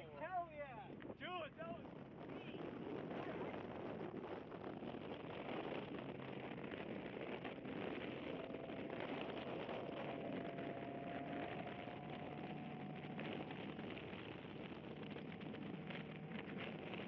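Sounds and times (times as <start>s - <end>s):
wind and road noise: 0.0s - 17.0s
faint car engine: 4.8s - 17.0s.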